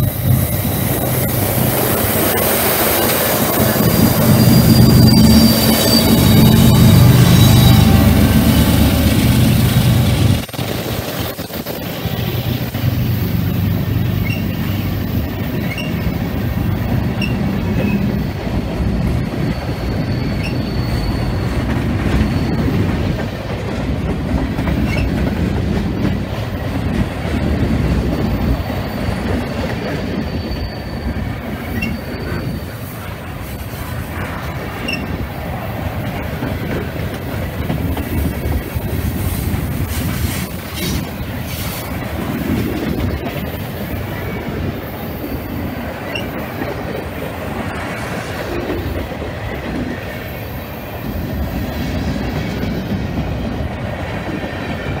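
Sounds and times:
high wheel squeals: 0:00.0 - 0:10.1, 0:14.0 - 0:23.2, 0:27.9 - 0:34.0, 0:34.6 - 0:35.2
diesel locomotive engine rumble: 0:00.0 - 0:55.0
train wheels rumbling on rails: 0:00.0 - 0:55.0.

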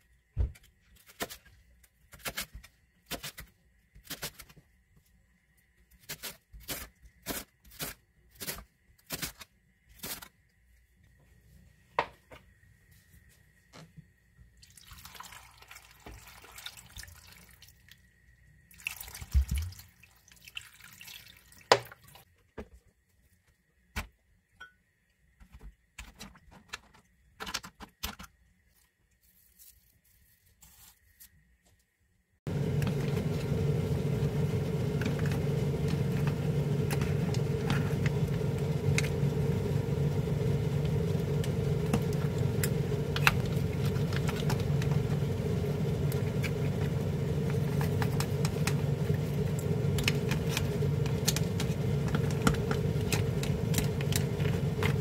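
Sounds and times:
pan boiling hum and hiss: 0:32.5 - 0:55.0.

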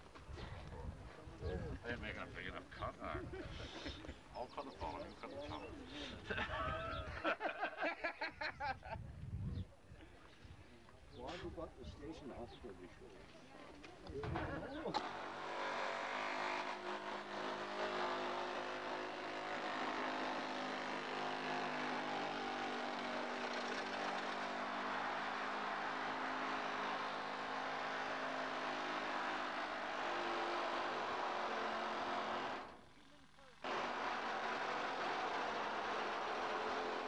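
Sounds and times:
rescue cutting equipment running: 0:15.0 - 0:32.8, 0:33.6 - 0:37.0.

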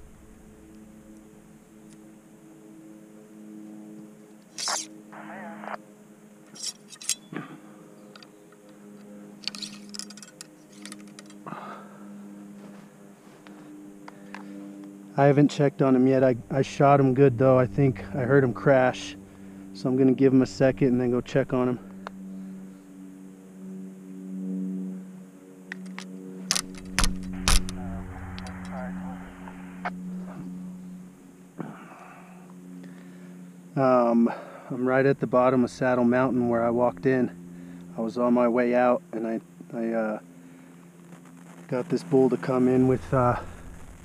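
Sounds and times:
faint steady hum: 0:00.0 - 0:44.0
rifle clicks and scrapes: 0:04.6 - 0:04.9, 0:09.4 - 0:11.4.

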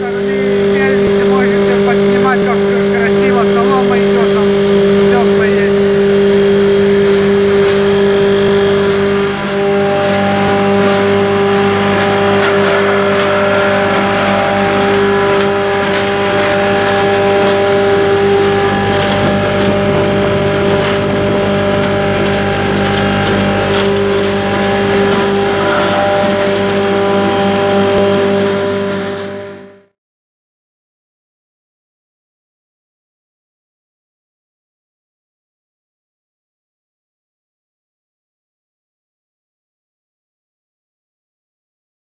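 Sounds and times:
machine hum with low drone: 0:00.0 - 0:30.0
machine whine: 0:00.0 - 0:30.0.

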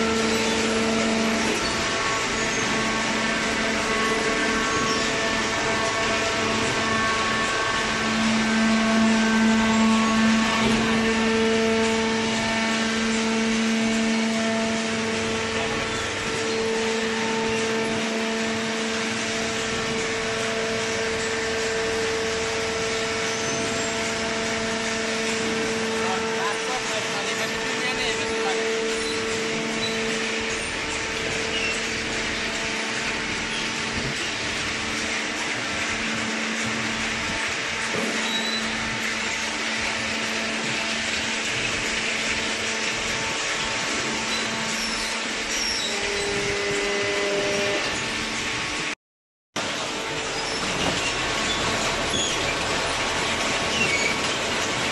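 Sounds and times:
hydraulic machine hum: 0:00.0 - 0:49.0, 0:49.6 - 0:54.9.

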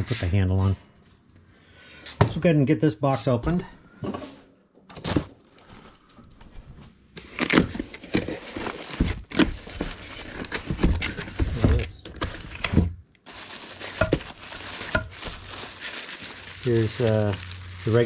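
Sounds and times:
plastic wrap crinkling: 0:07.3 - 0:18.0.

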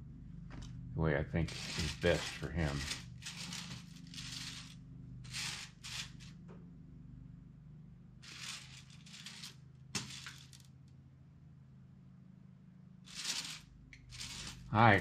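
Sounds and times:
steady low hum: 0:00.0 - 0:15.0
clay sculpture scraping on wood: 0:01.4 - 0:06.4, 0:08.2 - 0:10.6, 0:13.1 - 0:15.0.

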